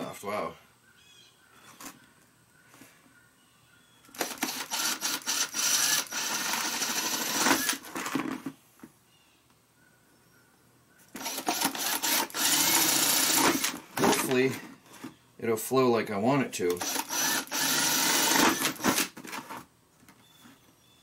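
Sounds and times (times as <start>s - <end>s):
cordless drill boring plastic: 4.1s - 8.2s, 11.2s - 14.4s, 16.7s - 19.5s.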